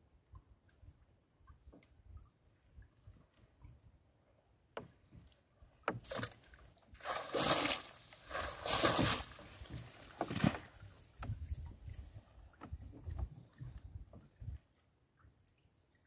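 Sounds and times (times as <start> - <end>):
water splashing off net: 7.0 - 10.7.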